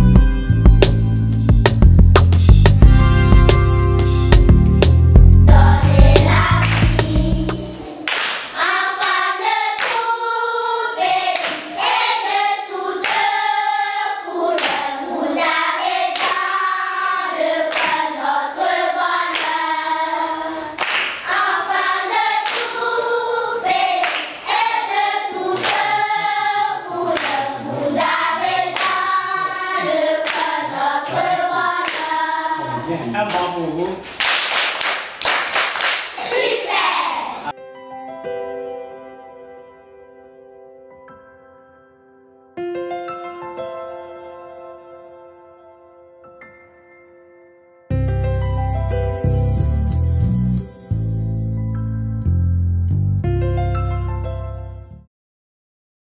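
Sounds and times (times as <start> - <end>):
bass-heavy recorded music: 0.0 - 7.8, 47.9 - 55.0
children singing together: 5.5 - 33.2, 36.2 - 37.5.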